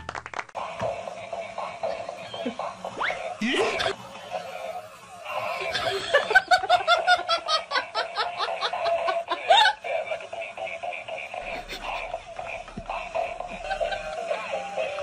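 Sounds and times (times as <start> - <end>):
person laughing hard: 1.2 - 15.0
electronic music: 11.4 - 15.0.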